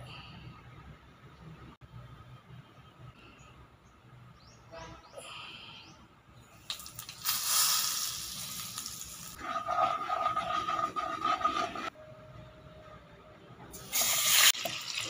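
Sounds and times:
spices sizzling in hot oil: 6.7s - 9.4s, 13.8s - 15.0s
spatula stirring oil: 6.7s - 11.9s.

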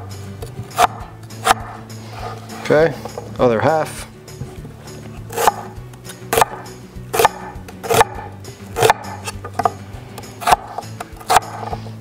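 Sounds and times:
background music: 0.0s - 12.0s
knife chopping on cutting board: 0.4s - 2.4s, 5.3s - 11.9s.

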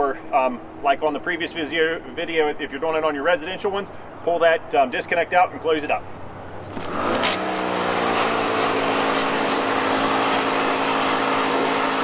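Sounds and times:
pressure washer motor hum: 6.7s - 12.0s
water jet spraying metal fins: 6.8s - 12.0s.

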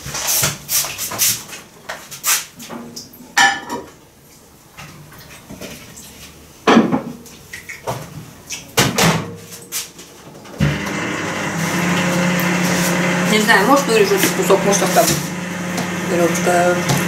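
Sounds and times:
plates and dishes clinking: 3.4s - 4.0s.

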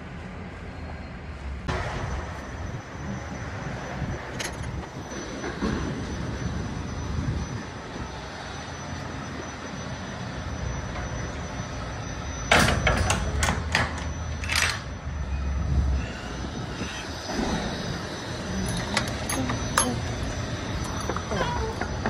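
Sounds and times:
sharp clanks and knocks: 18.6s - 22.0s.

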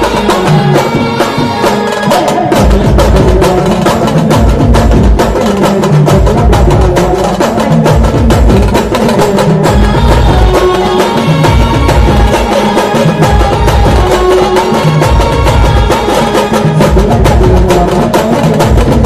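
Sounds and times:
band melody: 0.0s - 19.0s
rapid drum and percussion strikes: 0.0s - 19.0s
heavy bass: 2.6s - 12.6s.

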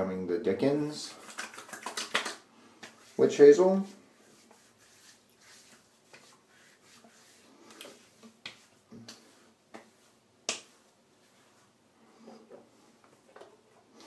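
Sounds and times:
hands slapping skin: 1.2s - 3.1s, 5.6s - 6.4s, 7.7s - 10.9s.

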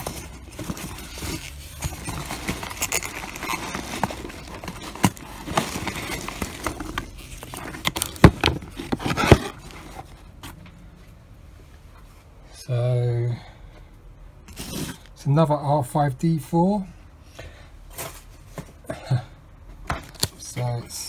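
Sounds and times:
packing peanuts and plastic rustling: 0.0s - 10.0s.

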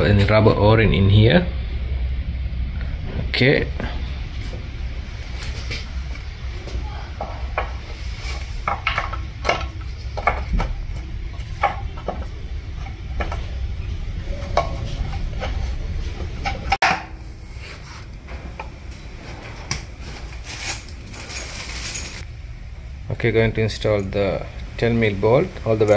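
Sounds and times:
low steady hum: 0.0s - 25.9s
metallic clinks and knocks: 20.3s - 22.2s.

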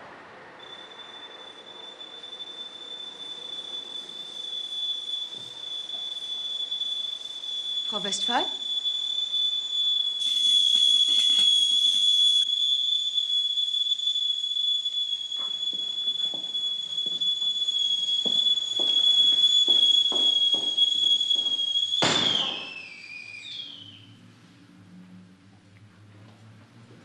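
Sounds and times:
kettle whistling: 0.6s - 24.3s
footsteps: 5.3s - 6.2s, 10.2s - 12.2s, 15.3s - 22.7s.

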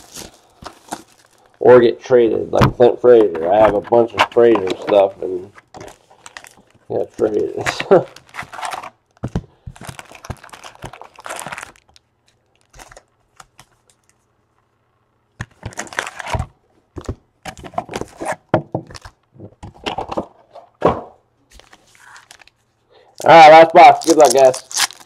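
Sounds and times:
foil packs crinkling: 0.0s - 2.0s, 3.5s - 13.6s, 15.6s - 16.5s, 21.5s - 22.6s, 23.2s - 25.0s.

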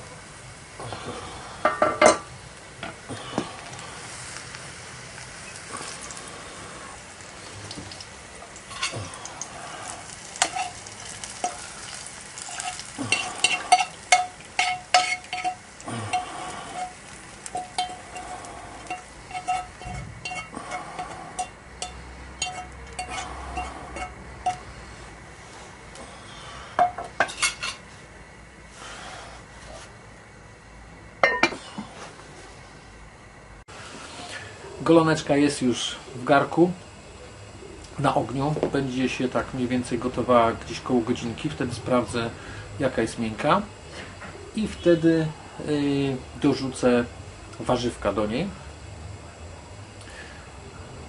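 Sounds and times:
utensil scraping frying pan: 5.4s - 24.8s, 26.8s - 27.9s
utensil clinking against pan: 12.5s - 16.2s, 17.6s - 24.6s.

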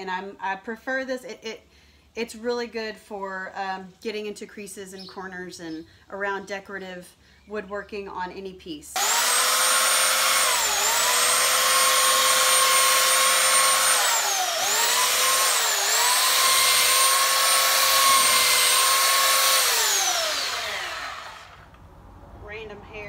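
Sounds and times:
electric belt sander sanding wood: 9.0s - 21.6s.

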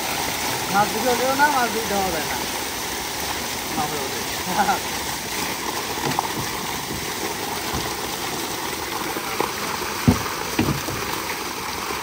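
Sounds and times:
water gushing and splashing: 0.0s - 12.0s
dull thumps: 6.0s - 8.0s, 10.0s - 11.2s.

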